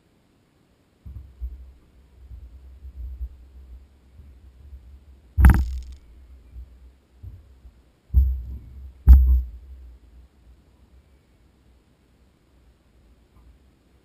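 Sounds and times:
heavy thumps: 0:05.4 - 0:06.0
sharp click: 0:05.4 - 0:06.0.

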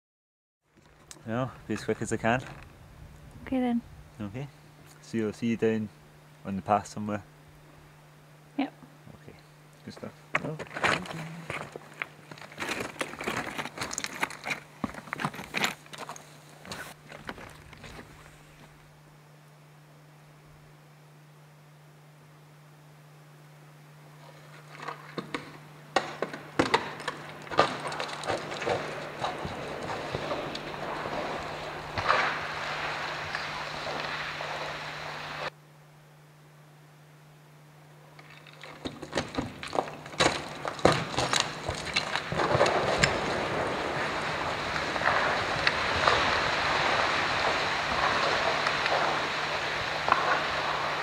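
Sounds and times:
faint low hum: 0:00.7 - 0:45.4
rocks clattering down: 0:10.3 - 0:18.3, 0:24.2 - 0:34.9, 0:38.2 - 0:51.0.

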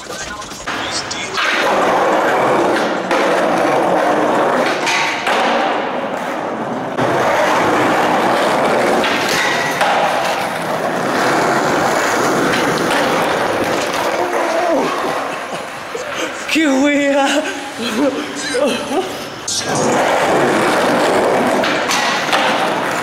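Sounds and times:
skateboard wheels rolling on concrete: 0:00.0 - 0:23.0
skateboard knocks: 0:07.0 - 0:15.2, 0:20.4 - 0:23.0.

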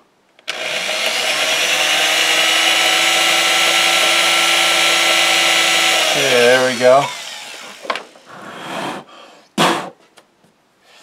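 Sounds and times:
electric drill boring into screw: 0:00.4 - 0:08.3.

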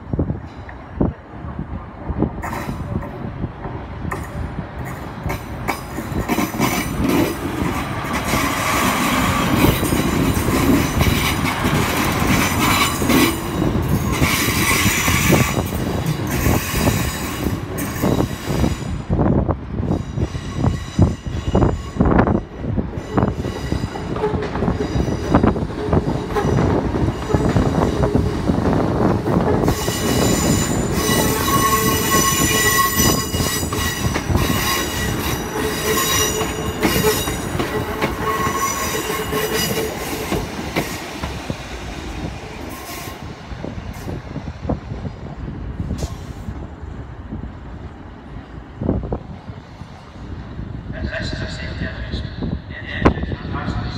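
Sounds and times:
passing train high-pitched tones: 0:04.8 - 0:46.7.

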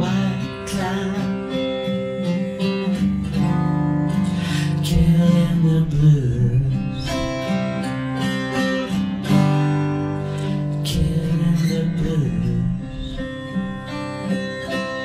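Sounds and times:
fingerstyle acoustic guitar: 0:00.0 - 0:15.0.

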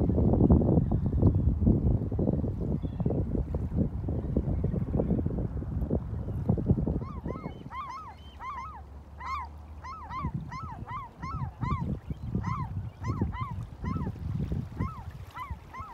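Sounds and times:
water noise: 0:00.0 - 0:15.9
wind gusts: 0:00.0 - 0:15.9
waterbirds honking: 0:07.0 - 0:15.9.

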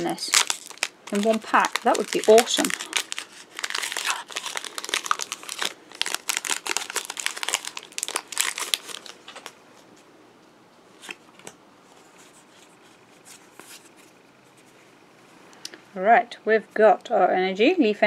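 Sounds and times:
foil wrapper tearing and crinkling: 0:00.0 - 0:09.6.

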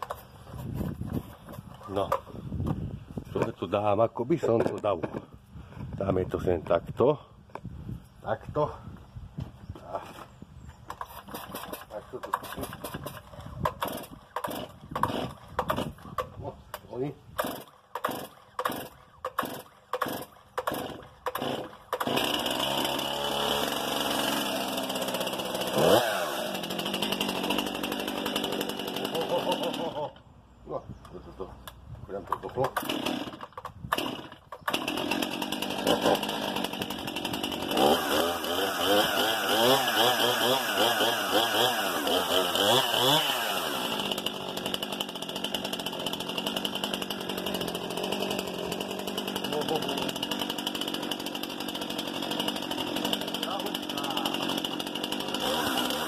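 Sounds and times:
chainsaw starter cord cranking: 0:10.9 - 0:30.2, 0:32.2 - 0:56.0
chainsaw engine running: 0:11.0 - 0:16.4, 0:17.4 - 0:30.2, 0:32.3 - 0:56.0.

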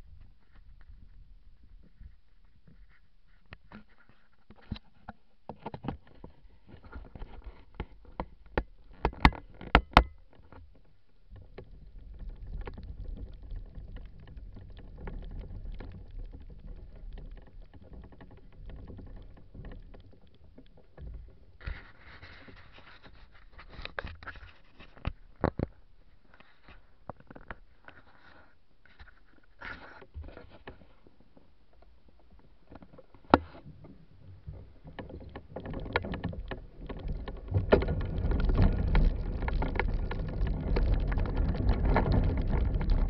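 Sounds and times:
low rumbling on microphone: 0:33.7 - 0:43.0.

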